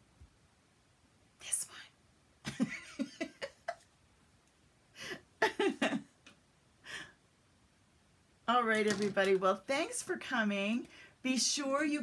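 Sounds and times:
woman half-whispering: 0:01.4 - 0:02.0.

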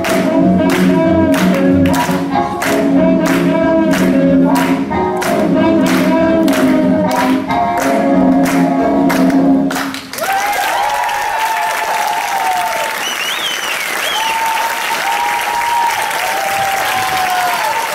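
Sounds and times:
music: 0:00.0 - 0:10.2
audience applauding: 0:00.0 - 0:17.9
whistles: 0:13.0 - 0:14.5.

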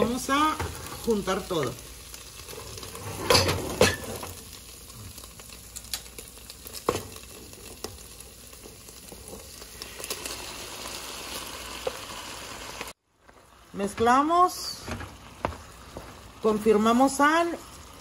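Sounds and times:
meat sizzling in a pan: 0:00.0 - 0:18.0.

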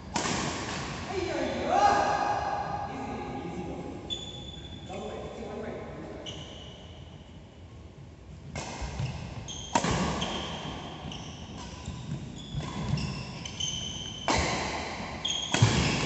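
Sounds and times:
racket hitting shuttlecock: 0:00.1 - 0:01.0, 0:08.5 - 0:10.9, 0:13.8 - 0:16.0
shoes squeaking on court: 0:04.1 - 0:04.9, 0:06.2 - 0:07.0, 0:08.8 - 0:14.4.

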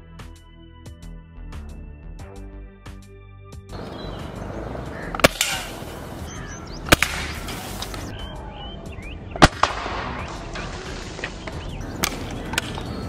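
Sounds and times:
air rifle firing: 0:05.1 - 0:08.1, 0:09.4 - 0:10.5.

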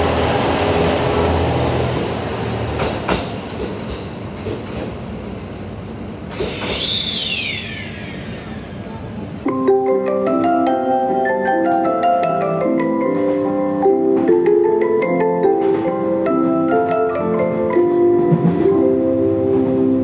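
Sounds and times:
mallet percussion music: 0:09.5 - 0:20.0.

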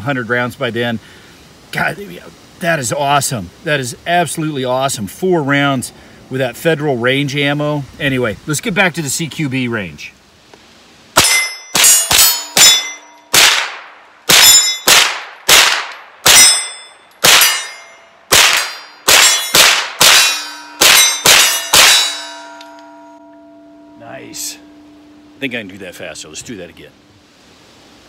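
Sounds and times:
steel targets ringing: 0:11.2 - 0:13.5, 0:14.3 - 0:15.1, 0:16.2 - 0:27.2
rifle shots: 0:11.2 - 0:22.2.

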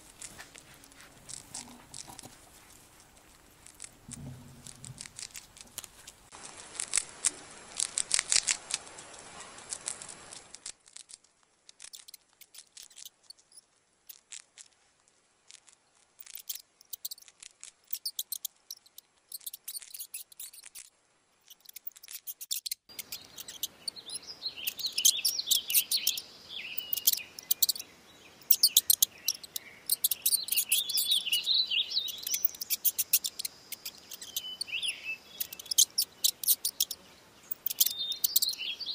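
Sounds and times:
faint hiss: 0:00.0 - 0:38.9
high-pitched clicks and chirps: 0:11.8 - 0:14.3, 0:16.2 - 0:20.9, 0:21.5 - 0:26.2, 0:26.8 - 0:27.8, 0:28.4 - 0:38.6.

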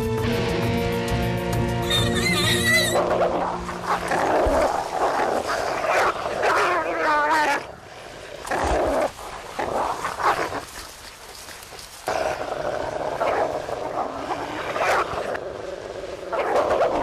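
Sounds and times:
wolf whining: 0:01.8 - 0:07.7
wolves growling and snarling: 0:02.1 - 0:10.9, 0:12.0 - 0:17.0.

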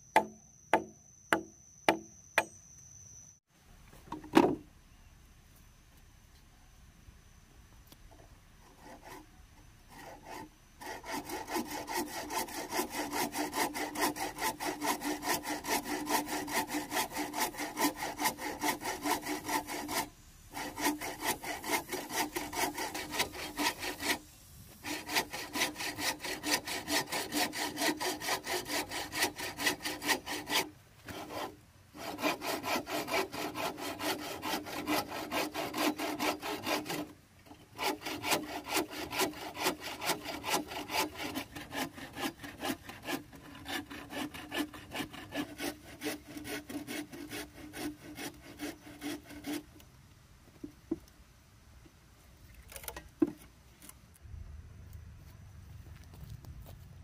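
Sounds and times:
bow saw cutting bamboo: 0:08.6 - 0:49.9.

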